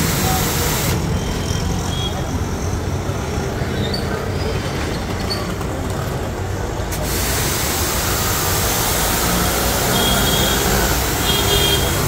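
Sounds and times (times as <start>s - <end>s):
pressure washer motor humming: 0.0s - 1.0s, 6.9s - 12.0s
water jet hissing: 0.0s - 1.4s, 6.9s - 12.0s.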